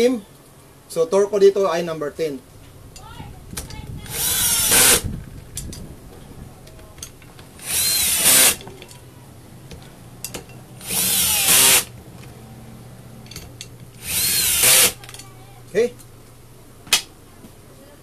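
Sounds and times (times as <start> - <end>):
cordless drill whirring: 4.1 - 5.0, 7.6 - 8.6, 10.8 - 11.9, 14.0 - 15.0.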